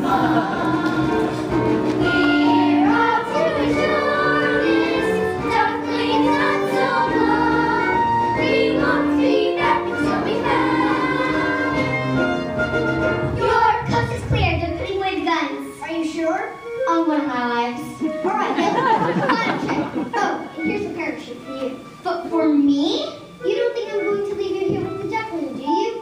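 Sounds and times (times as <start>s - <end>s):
children's chorus singing: 0.0s - 14.4s
musical accompaniment: 0.0s - 26.0s.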